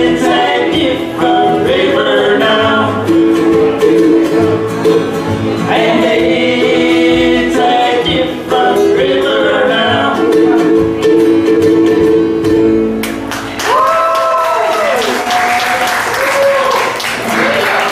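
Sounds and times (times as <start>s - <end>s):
band singing in close harmony: 0.0s - 4.6s, 5.4s - 11.2s
plucked strings: 0.0s - 13.6s
upright bass: 0.0s - 13.7s
acoustic guitar: 0.0s - 17.9s.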